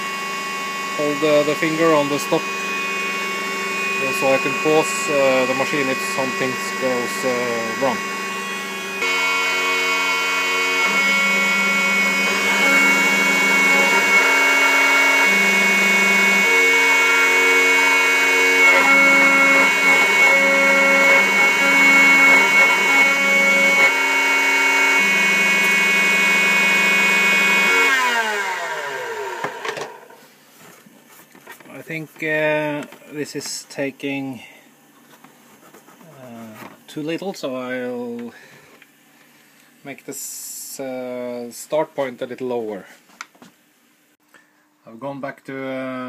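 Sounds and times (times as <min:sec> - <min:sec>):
router spindle whine: 0:00.0 - 0:30.2
stepper motor tones: 0:00.0 - 0:30.2.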